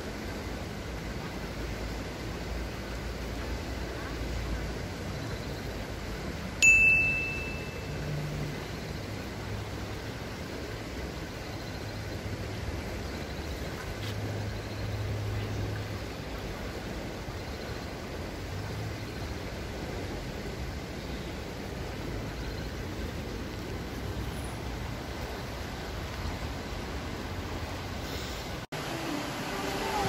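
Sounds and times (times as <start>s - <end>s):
steady outdoor background rush: 0.0s - 30.0s
sharp metallic ding: 6.6s - 8.0s.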